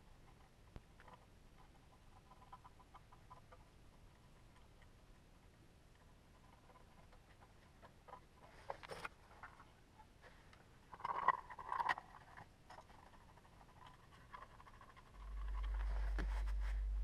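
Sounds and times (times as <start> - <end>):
rustling: 5.9 - 17.0.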